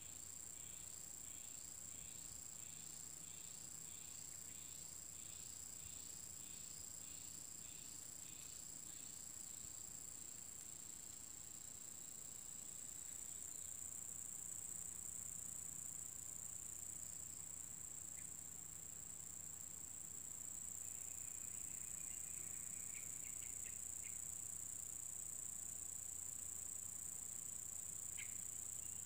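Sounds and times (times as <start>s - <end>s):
insect chirring: 0.0s - 29.0s.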